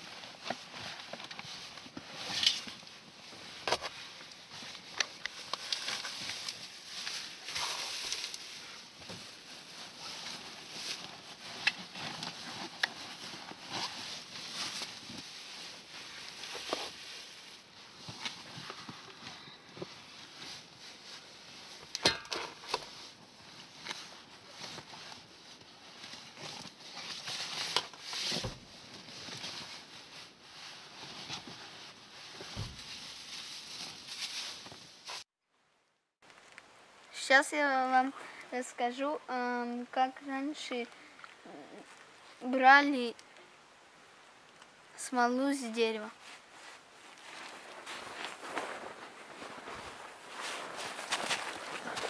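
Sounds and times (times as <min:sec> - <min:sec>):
nylon backpack rustling: 0:00.0 - 0:21.9, 0:46.1 - 0:52.0
rummaging through bags: 0:00.0 - 0:34.9, 0:46.2 - 0:52.0.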